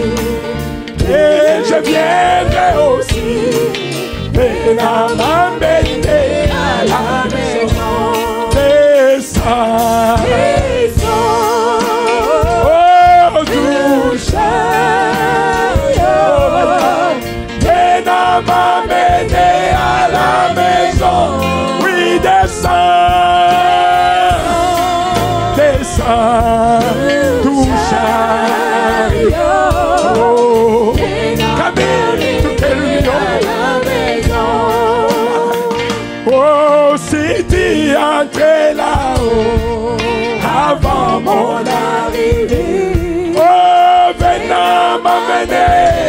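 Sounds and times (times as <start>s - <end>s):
man singing into a microphone: 4.4s - 14.2s, 21.8s - 28.6s, 36.3s - 41.9s.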